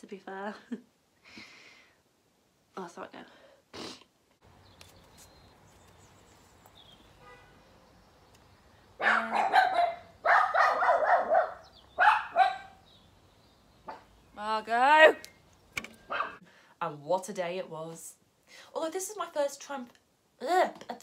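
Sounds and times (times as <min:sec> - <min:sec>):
dog barking: 0:09.0 - 0:12.8, 0:16.1 - 0:16.4.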